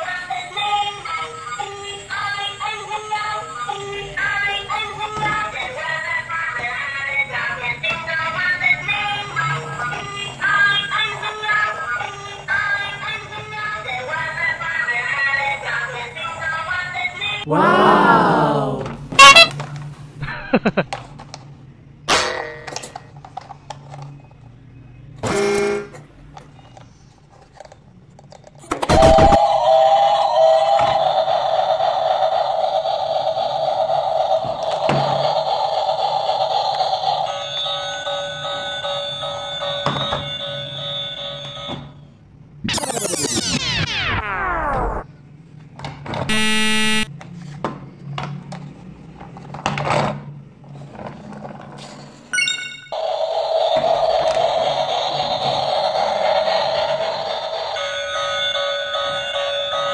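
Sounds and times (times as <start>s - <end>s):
horn-like toot: 19.1s - 19.6s, 46.3s - 47.1s
loud electronic buzz: 42.6s - 45.1s, 46.3s - 47.1s.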